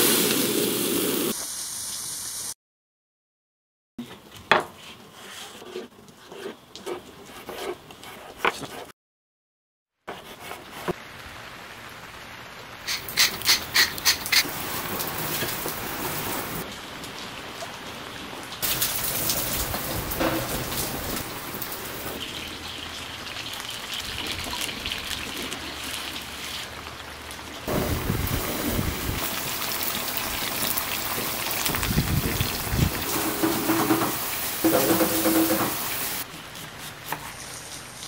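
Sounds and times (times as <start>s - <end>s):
potatoes sizzling in oil: 0.0s - 2.5s, 12.8s - 16.7s, 18.6s - 36.3s.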